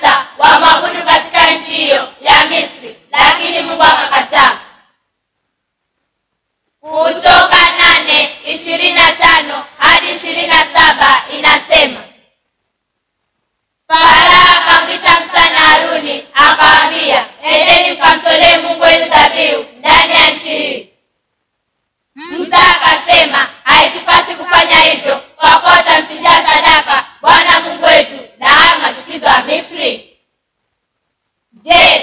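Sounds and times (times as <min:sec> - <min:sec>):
children singing together: 0:00.0 - 0:04.8, 0:06.8 - 0:12.2, 0:13.9 - 0:20.9, 0:22.2 - 0:30.1, 0:31.6 - 0:32.0.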